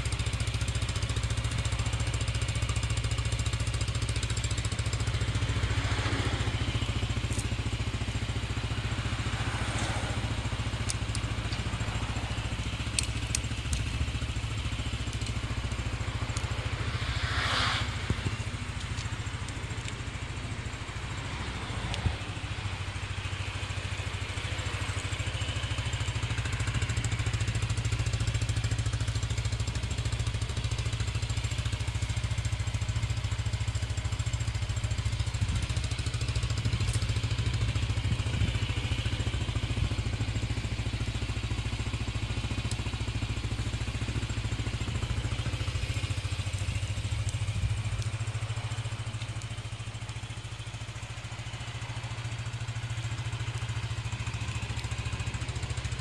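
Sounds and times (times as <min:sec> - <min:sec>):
scooter engine idling: 0:00.0 - 0:56.0.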